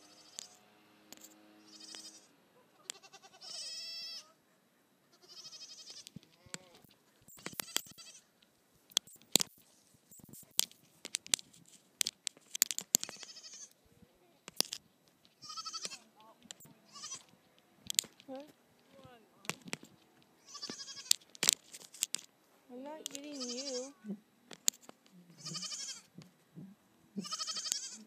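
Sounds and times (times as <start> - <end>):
goat kid bleating: 0.0 - 0.6, 1.6 - 4.4, 5.1 - 8.3, 13.0 - 13.8, 15.4 - 17.4, 20.4 - 21.2, 23.0 - 24.2, 25.3 - 26.2, 27.2 - 28.0
sharp clicks and knocks: 6.0 - 13.3, 14.4 - 22.4, 24.5 - 25.1.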